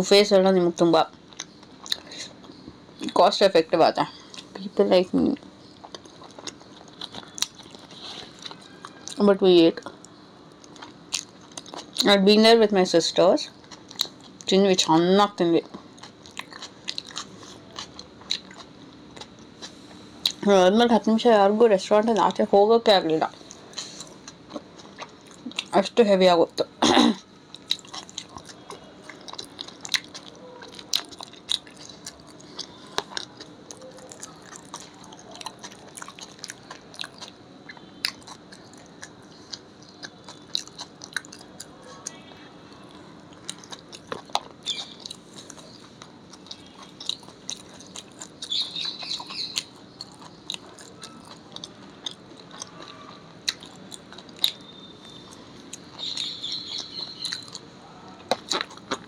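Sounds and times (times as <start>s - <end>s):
faint steady hum: 0.0s - 59.0s
chewing and crunching: 0.8s - 3.2s, 5.3s - 12.2s, 12.9s - 20.5s, 23.1s - 26.0s, 27.5s - 59.0s.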